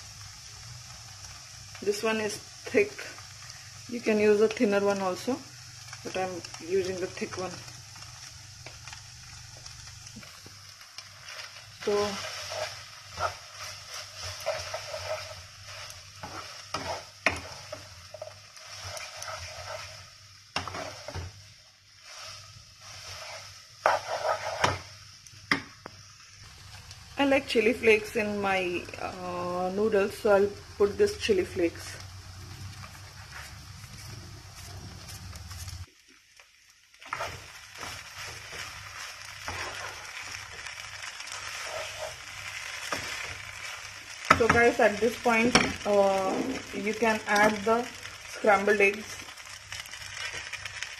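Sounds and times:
noodles sizzling in pan: 0.0s - 50.9s
wooden spatula scraping pan: 11.0s - 21.4s, 22.0s - 24.9s, 37.0s - 49.1s.

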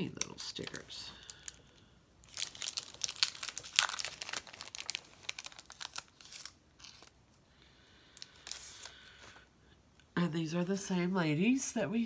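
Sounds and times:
packaging crinkling: 0.1s - 7.2s, 8.2s - 9.4s.

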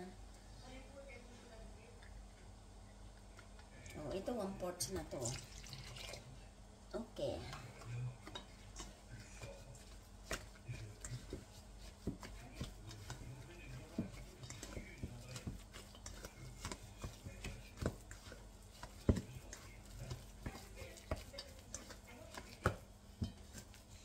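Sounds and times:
metal utensil scraping a bowl: 7.5s - 24.0s.

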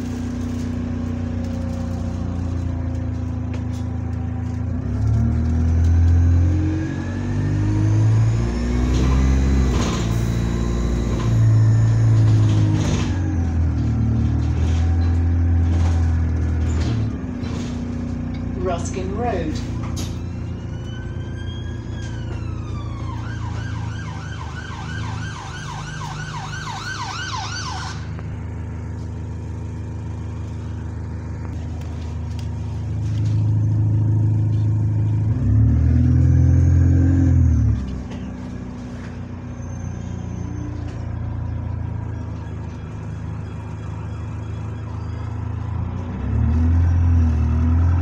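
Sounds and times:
bus diesel engine revving: 0.0s - 20.2s, 27.9s - 41.8s, 44.9s - 48.0s
emergency siren wailing and yelping: 2.0s - 16.5s, 19.5s - 31.6s, 34.0s - 48.0s.

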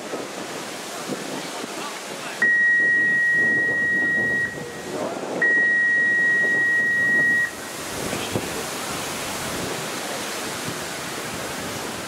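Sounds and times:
referee's whistle long blasts: 2.4s - 4.8s, 5.4s - 7.6s.

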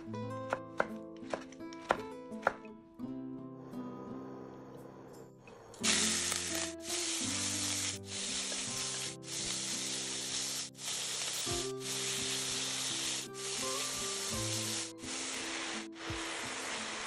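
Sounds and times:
meat sizzling in oil: 5.8s - 17.0s.

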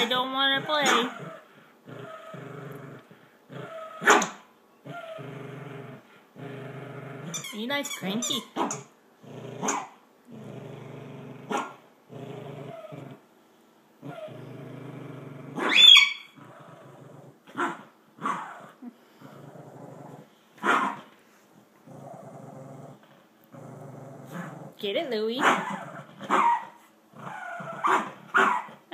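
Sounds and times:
dog growling: 0.0s - 4.2s, 4.8s - 7.4s, 8.6s - 13.3s, 14.0s - 21.0s, 21.8s - 24.8s, 25.4s - 28.9s
dog barking: 4.0s - 4.4s, 9.6s - 10.0s, 20.6s - 21.0s, 26.3s - 26.8s, 27.8s - 28.7s.

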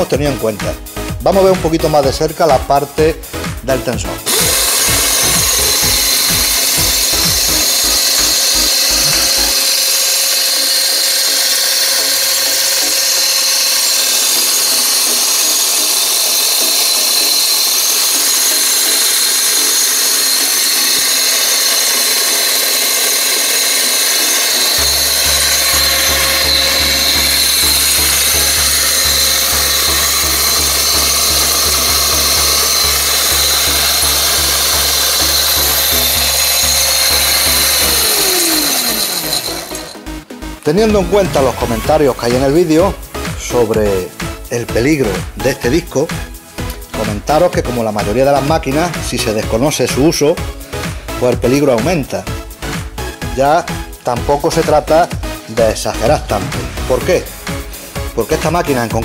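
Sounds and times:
background music: 0.0s - 59.0s
small electric motor running: 4.3s - 40.2s.

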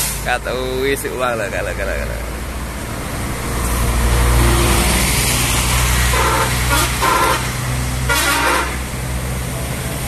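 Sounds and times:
diesel coach engine passing: 0.0s - 10.0s
horn toots: 6.1s - 8.9s.

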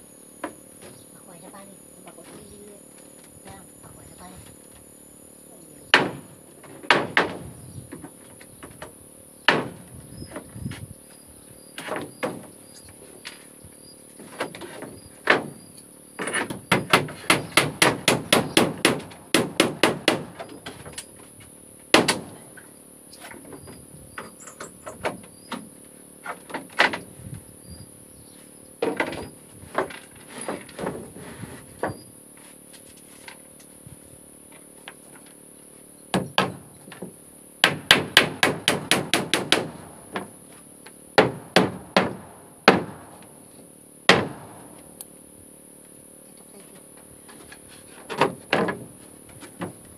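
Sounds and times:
hammers nailing wooden planks: 5.9s - 8.8s, 9.4s - 10.4s, 11.8s - 12.6s, 14.2s - 15.6s, 16.2s - 21.0s, 21.9s - 22.6s, 23.4s - 27.1s, 28.8s - 32.0s, 36.1s - 40.4s, 41.1s - 43.3s, 44.1s - 44.7s, 47.4s - 49.8s.

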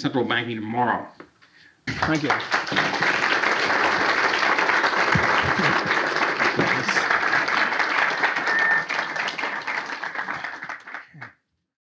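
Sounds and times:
audience applauding: 1.9s - 11.4s.

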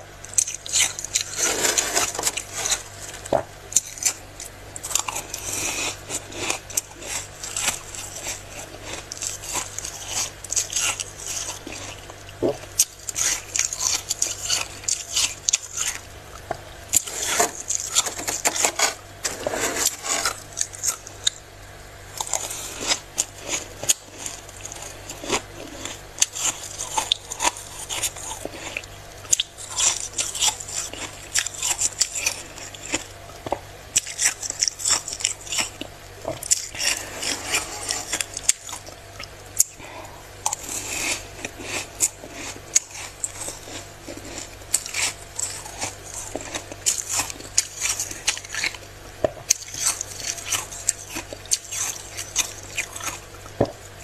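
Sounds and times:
faint low hum: 0.0s - 54.0s
spoon scraping freezer frost: 0.3s - 4.2s, 4.8s - 12.1s, 16.9s - 21.3s, 22.2s - 33.0s, 33.9s - 38.9s, 39.6s - 48.8s.

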